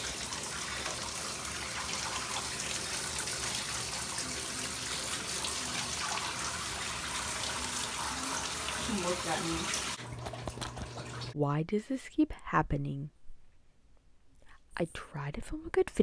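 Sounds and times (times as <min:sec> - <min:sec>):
water spraying from shower head: 0:00.0 - 0:10.0
water splashing into bathtub: 0:00.0 - 0:11.4.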